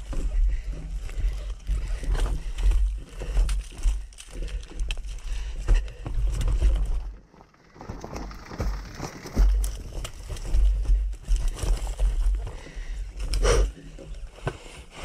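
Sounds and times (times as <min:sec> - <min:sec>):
tyres crunching over stones: 0:00.0 - 0:14.9.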